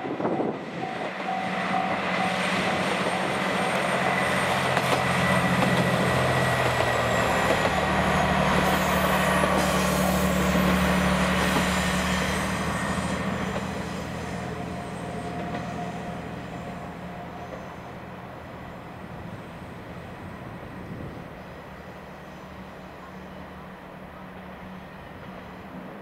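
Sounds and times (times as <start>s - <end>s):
wheel-on-rail noise: 2.2s - 21.1s.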